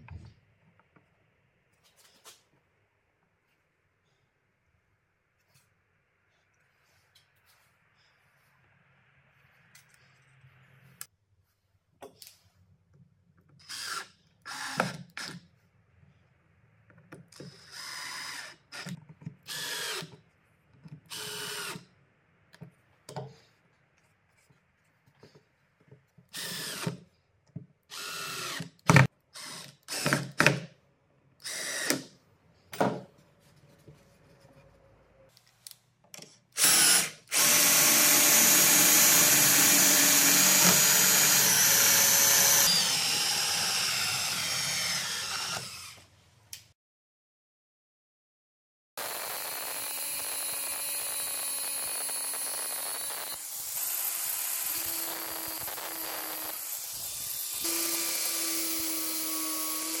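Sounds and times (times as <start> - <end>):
power drill spinning: 13.6 - 15.4, 17.4 - 20.1, 21.1 - 21.9, 26.3 - 27.1, 27.9 - 30.3, 31.4 - 32.1, 36.6 - 46.2, 49.0 - 60.0.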